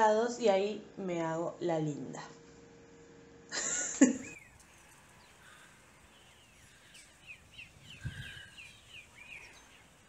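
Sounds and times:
small birds chirping: 0:04.0 - 0:10.0.

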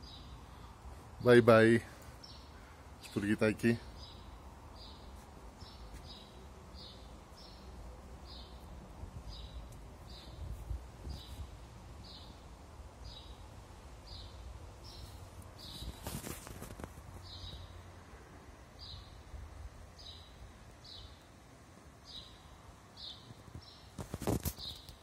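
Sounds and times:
sparrow chirping: 0:00.0 - 0:00.7, 0:02.1 - 0:08.7, 0:09.3 - 0:10.4, 0:11.1 - 0:12.4, 0:13.0 - 0:16.1, 0:17.2 - 0:17.8, 0:18.8 - 0:19.2, 0:20.0 - 0:21.2, 0:22.0 - 0:23.9
brief rustle: 0:15.0 - 0:17.2, 0:23.9 - 0:25.0.

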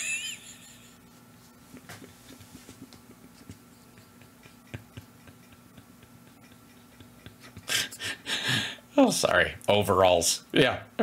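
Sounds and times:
man laughing: 0:00.0 - 0:01.0, 0:01.8 - 0:08.8
low steady hum: 0:00.0 - 0:11.0.

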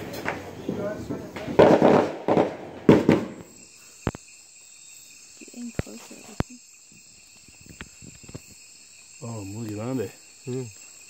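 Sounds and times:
loud crackling noise: 0:00.0 - 0:03.4
crickets and insects trilling: 0:00.0 - 0:11.0.

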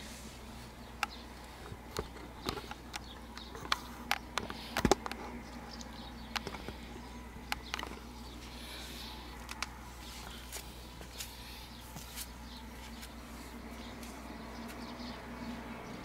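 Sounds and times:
sharp clicks and small knocks: 0:01.0 - 0:06.8, 0:07.4 - 0:08.1, 0:09.4 - 0:09.8.

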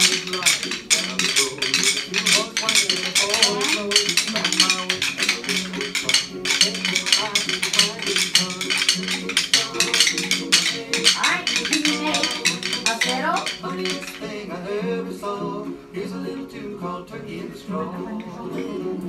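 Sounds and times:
children tapping rhythm sticks: 0:00.0 - 0:14.5
music: 0:00.0 - 0:19.0.

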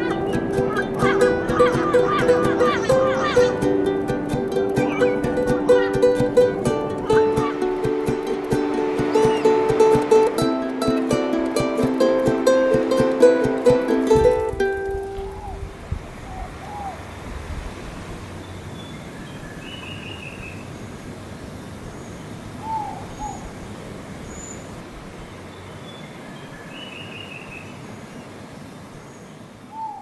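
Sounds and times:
background hiss: 0:00.0 - 0:30.0
low two-note hooting call: 0:04.8 - 0:10.6.

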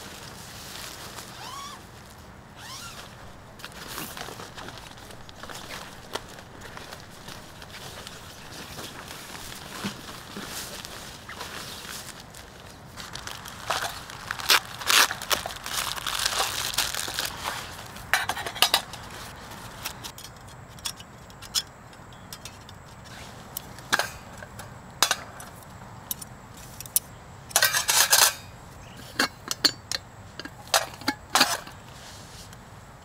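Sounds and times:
fabric sack rustling: 0:00.0 - 0:18.1
light metal clinks and knocks: 0:19.8 - 0:31.8.

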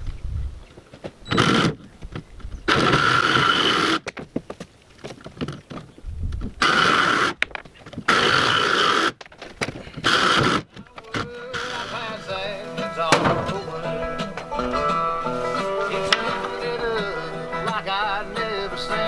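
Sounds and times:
electric jigsaw cutting plywood: 0:02.7 - 0:04.0, 0:06.6 - 0:07.4, 0:08.1 - 0:09.2, 0:10.0 - 0:10.7.

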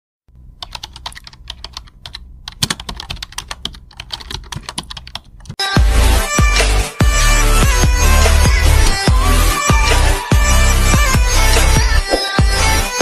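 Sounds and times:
loud electronic music: 0:05.6 - 0:13.0.

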